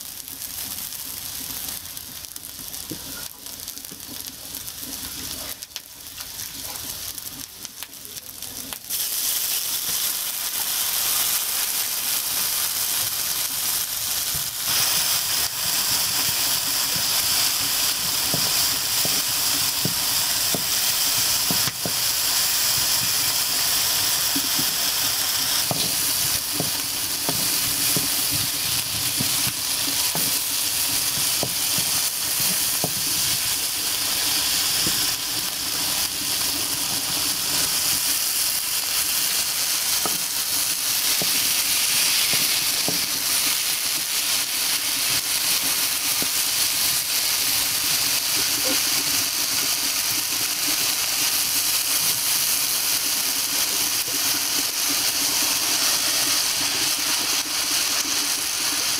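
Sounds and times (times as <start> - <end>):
onions sizzling in hot oil: 0.0 - 58.9.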